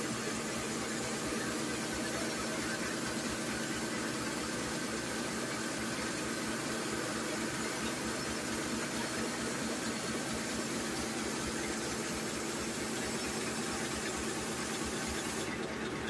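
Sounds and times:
machine hissing and humming: 0.0s - 16.0s.

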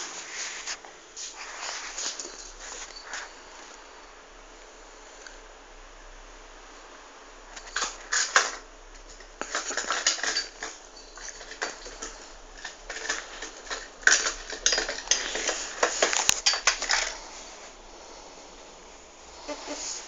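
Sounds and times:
metal rack rattling: 7.6s - 17.2s.

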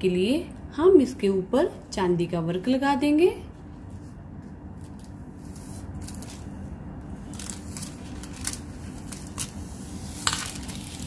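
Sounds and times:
steady low hum: 0.0s - 11.0s
paper sheets rustling: 4.8s - 6.6s, 7.2s - 11.0s.

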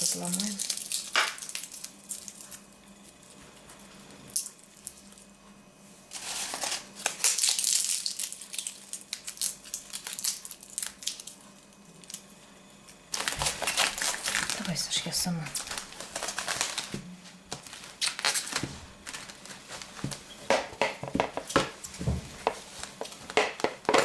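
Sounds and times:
dry leaves crackling: 6.1s - 11.3s, 13.1s - 16.9s.

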